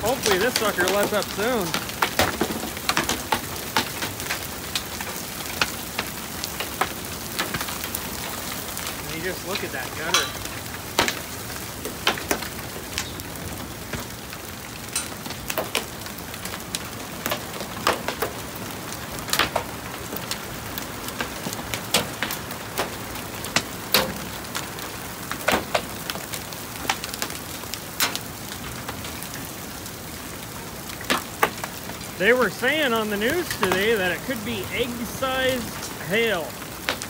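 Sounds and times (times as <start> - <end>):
hail hissing down: 0.0 - 37.0
hailstones cracking on hard surfaces: 0.0 - 37.0.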